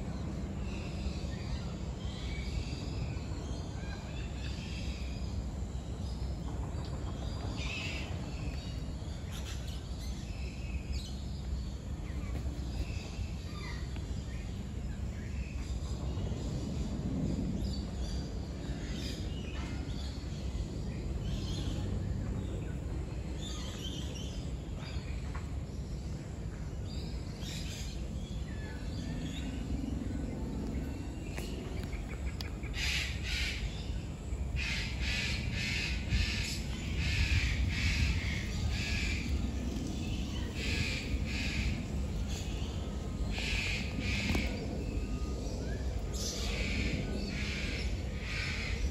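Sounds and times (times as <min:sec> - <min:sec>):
low background rumble: 0:00.0 - 0:48.9
loud harsh bird calls: 0:32.6 - 0:39.4.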